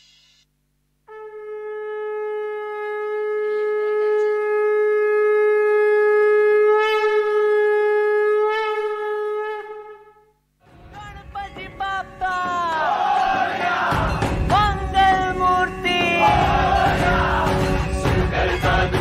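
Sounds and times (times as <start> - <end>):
conch shell blown long note: 1.1 - 10.4.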